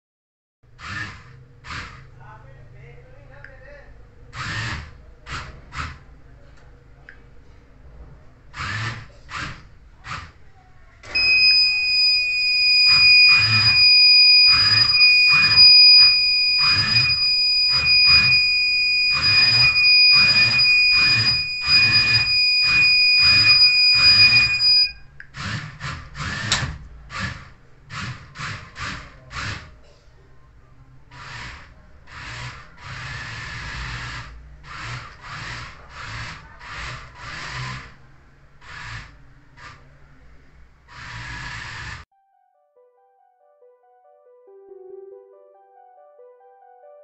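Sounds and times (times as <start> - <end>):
high-pitched buzzer beep: 11.1 - 25.0
regular pulsing sound: 11.2 - 24.9.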